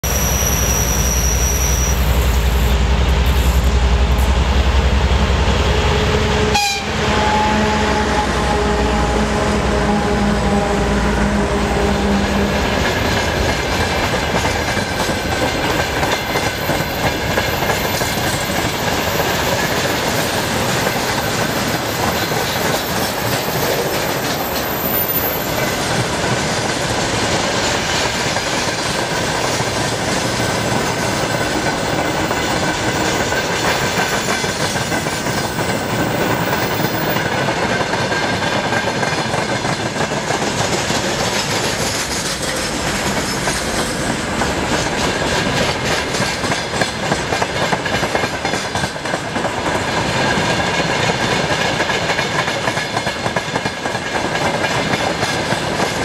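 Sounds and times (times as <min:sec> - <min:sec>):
diesel locomotive engines running: 0:00.0 - 0:56.0
faint wheel squeal: 0:00.1 - 0:03.7
locomotive horn: 0:05.6 - 0:12.7.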